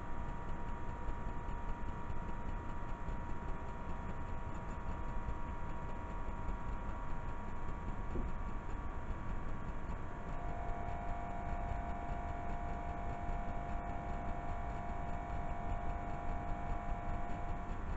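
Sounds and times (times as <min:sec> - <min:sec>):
tape hiss and low hum: 0:00.0 - 0:17.9
faint whining tones: 0:07.4 - 0:17.9
high whine: 0:10.3 - 0:17.9.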